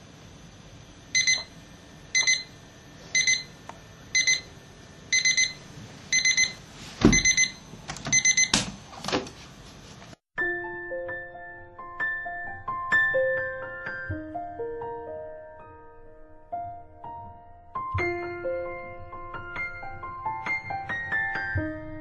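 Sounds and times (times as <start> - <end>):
alarm clock beeping: 1.2 - 1.5, 2.2 - 2.5, 3.2 - 3.6, 4.2 - 4.5, 5.1 - 8.6.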